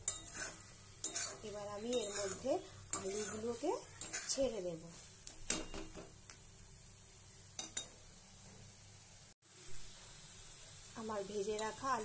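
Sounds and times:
metal spatula scraping a pan: 0.0 - 6.0
faint frying sizzle: 0.0 - 12.0.

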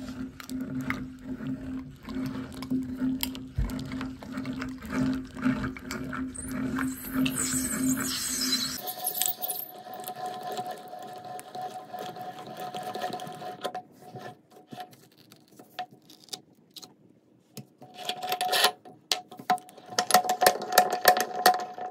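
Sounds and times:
hand-cranked meat grinder turning: 0.0 - 14.9, 19.8 - 21.9
metal mechanism whine: 5.9 - 10.1.

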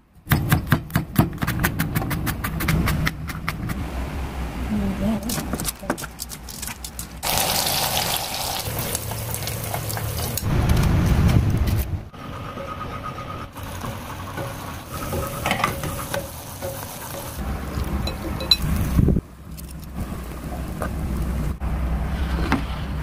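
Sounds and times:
deep-frying oil sizzling: 7.2 - 10.5.

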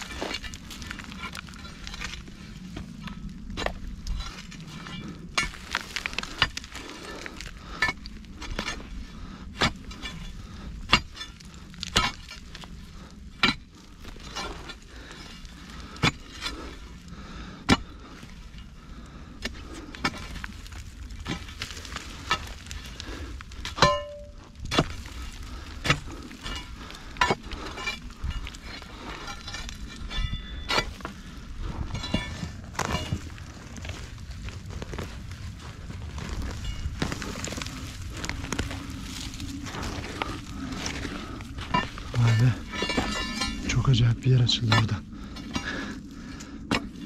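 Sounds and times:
dirt and gravel trickling: 0.0 - 47.0
pry bar striking stony soil: 7.8 - 8.9, 9.5 - 12.6, 13.3 - 14.8, 16.0 - 16.6, 23.6 - 31.1, 39.8 - 45.7
metal ringing off stone: 23.8 - 24.4.

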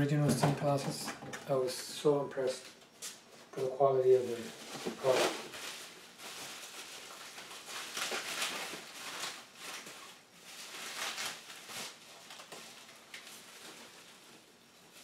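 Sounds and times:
bubble wrap crinkling: 4.3 - 15.0.

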